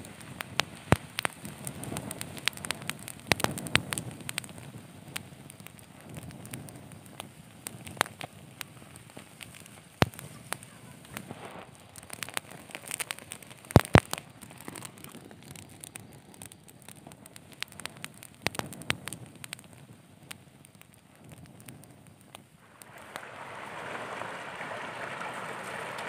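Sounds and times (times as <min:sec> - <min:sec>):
fire crackling: 0:00.0 - 0:26.0
sharp pops of fire: 0:00.0 - 0:26.0.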